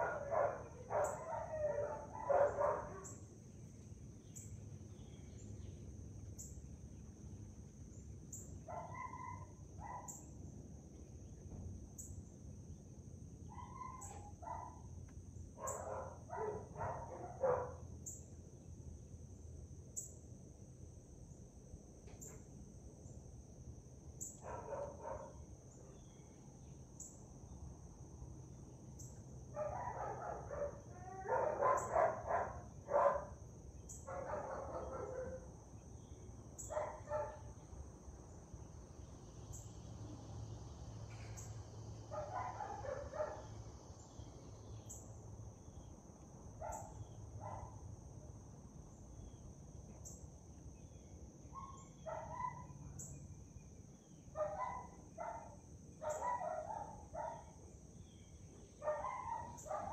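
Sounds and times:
animals calling: 0:00.0 - 0:03.2, 0:13.5 - 0:14.7, 0:58.6 - 0:59.9.

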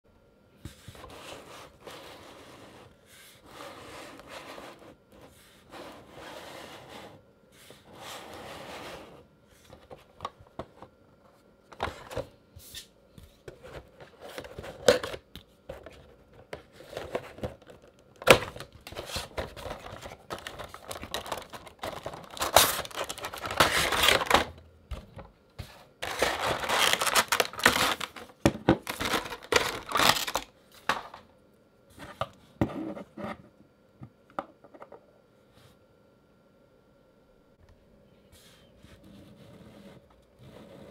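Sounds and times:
cardboard sliding and rubbing: 0:00.7 - 0:09.8, 0:38.4 - 0:40.9
plastic insert crinkling: 0:13.6 - 0:24.6, 0:26.0 - 0:31.2.

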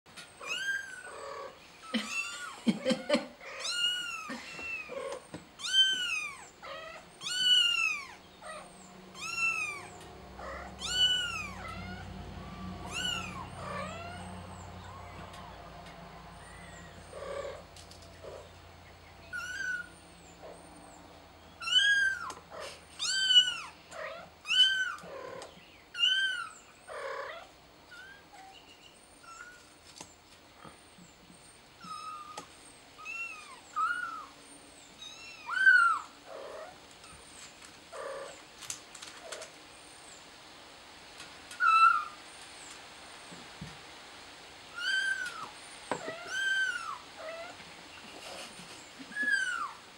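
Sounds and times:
kitten meowing: 0:03.5 - 0:15.0, 0:19.3 - 0:19.9, 0:21.6 - 0:22.4, 0:35.0 - 0:36.1, 0:44.8 - 0:47.6.

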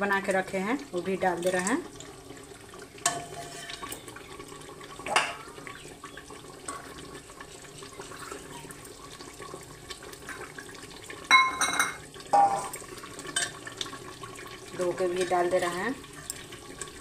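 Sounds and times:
utensils clinking on metal pot: 0:03.0 - 0:04.1, 0:05.0 - 0:05.5, 0:11.3 - 0:13.7.

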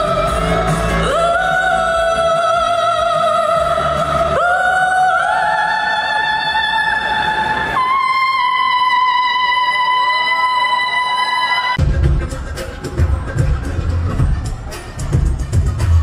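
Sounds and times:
soft musical accompaniment: 0:00.0 - 0:05.3.

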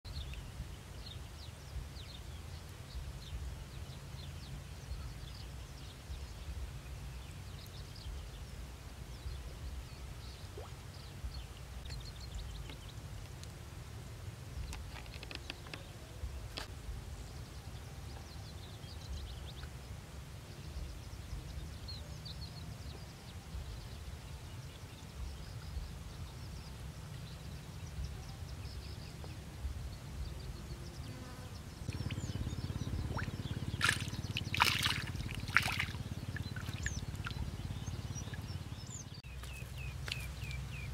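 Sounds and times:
bird chirps: 0:30.5 - 0:40.9
low rumble: 0:31.8 - 0:39.3.

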